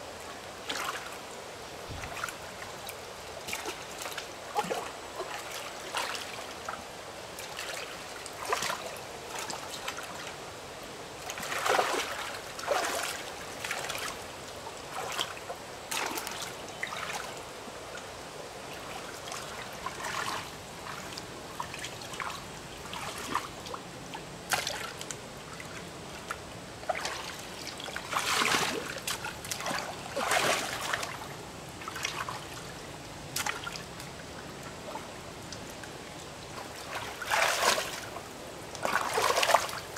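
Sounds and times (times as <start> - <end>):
water trickling: 11.2 - 39.9.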